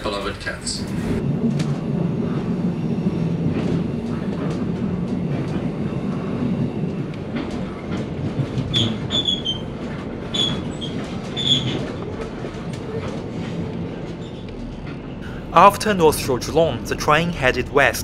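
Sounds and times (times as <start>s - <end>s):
train wheels rumbling on rail: 0.0s - 18.0s
high wheel squeals: 8.6s - 12.0s.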